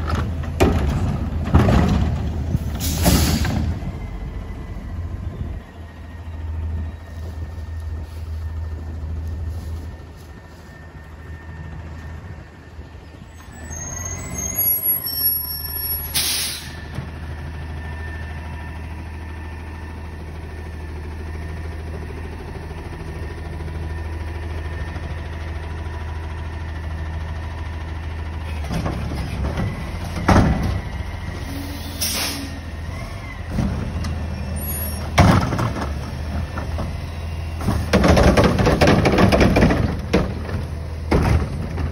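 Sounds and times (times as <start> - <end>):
diesel engine idling: 0.0 - 41.9
air brake hisses: 2.8 - 3.6, 16.0 - 16.9, 31.4 - 32.7.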